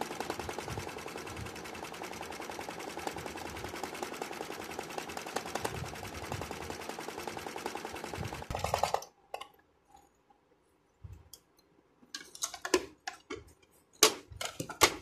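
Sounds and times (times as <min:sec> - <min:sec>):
sewing machine stitching: 0:00.0 - 0:09.1.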